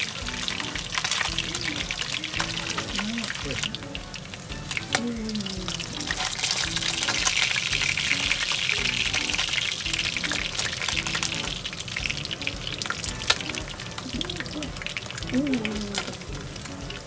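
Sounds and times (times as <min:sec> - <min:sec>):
fish frying in oil: 0:00.0 - 0:17.0
quiet background music: 0:00.0 - 0:17.0.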